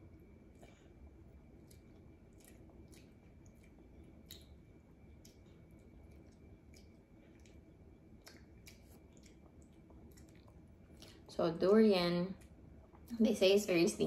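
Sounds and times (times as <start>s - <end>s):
wet mouth clicks of chewing: 1.5s - 11.2s.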